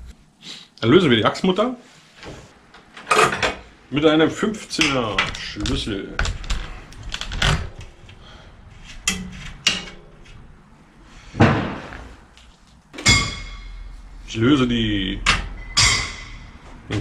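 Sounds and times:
ringing metal clink: 15.6s - 16.4s.

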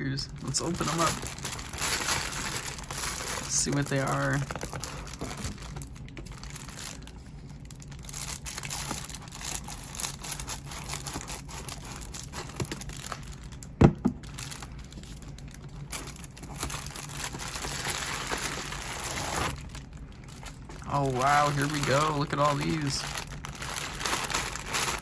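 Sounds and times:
plastic mailer crinkling: 0.0s - 25.0s.

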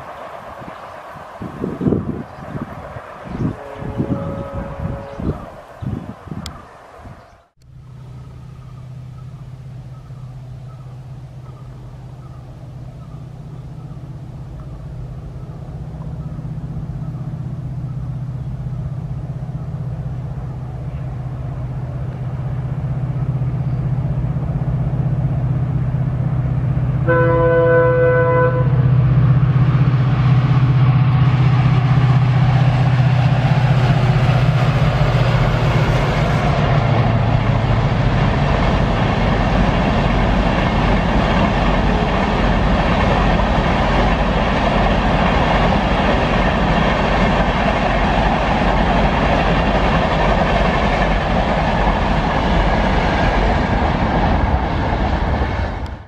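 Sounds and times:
locomotive engine drone: 0.0s - 56.0s
train horn blast: 3.3s - 5.5s, 27.0s - 29.3s, 41.8s - 42.8s
train wheels rumbling on bridge: 7.9s - 56.0s.

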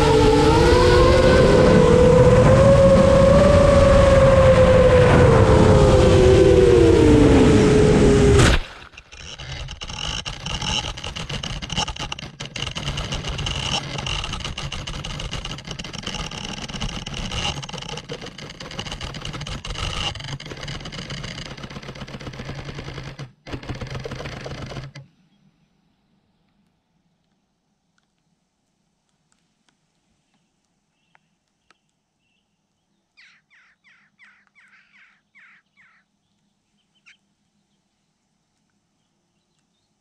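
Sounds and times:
drone propellers whining: 0.0s - 25.0s.

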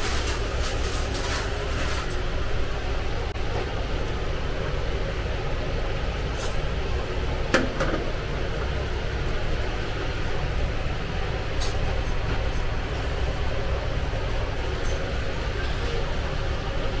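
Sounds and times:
low kitchen rumble: 0.0s - 17.0s
metal ladle knocking on metal tray: 7.5s - 8.1s.

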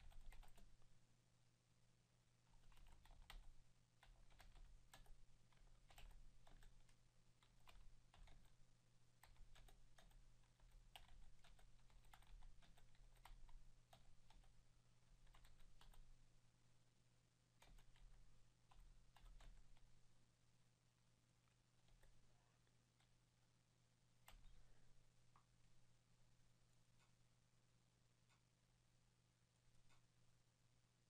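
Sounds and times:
faint keyboard typing: 0.0s - 0.9s, 2.4s - 16.2s, 17.5s - 20.1s, 21.4s - 23.2s, 24.2s - 25.5s.

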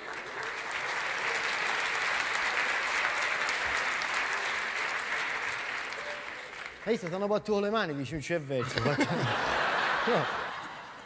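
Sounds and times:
audience applauding: 0.0s - 7.7s.

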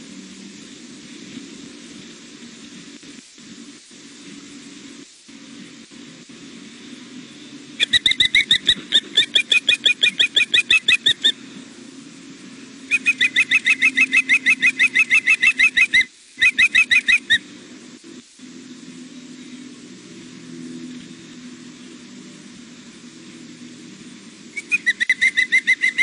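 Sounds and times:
steady low hum: 0.0s - 26.0s
osprey chick piercing chirps: 7.8s - 11.4s, 12.9s - 17.4s, 24.5s - 26.0s.

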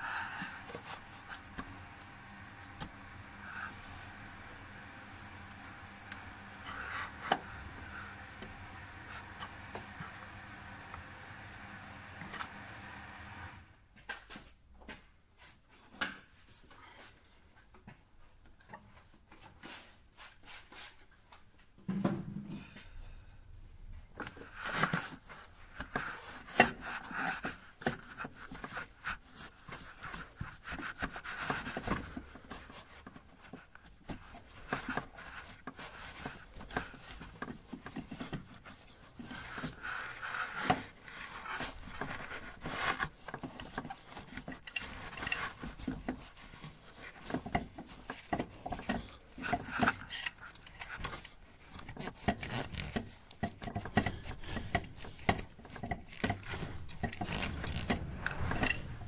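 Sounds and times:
gloved hands rubbing and scraping: 19.4s - 21.2s, 24.2s - 59.0s.

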